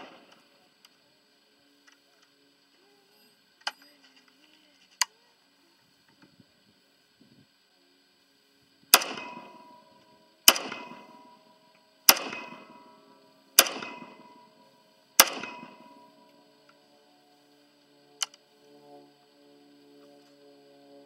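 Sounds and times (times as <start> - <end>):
gunshot echo: 0.0 - 0.4, 8.9 - 14.6, 15.2 - 16.3
pistol gunshots: 8.9 - 14.6, 15.2 - 16.2.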